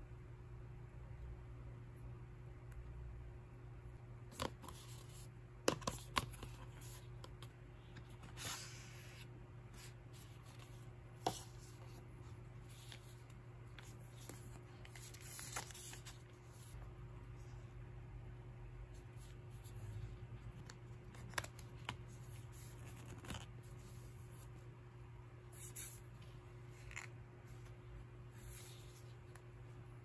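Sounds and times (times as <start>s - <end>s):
low steady hum: 0.0s - 30.0s
paper leaflet rustling: 9.8s - 16.8s.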